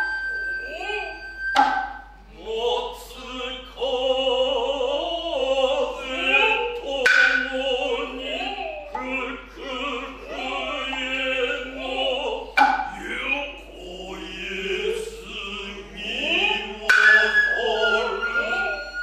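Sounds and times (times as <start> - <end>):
men chanting: 2.2 - 19.0.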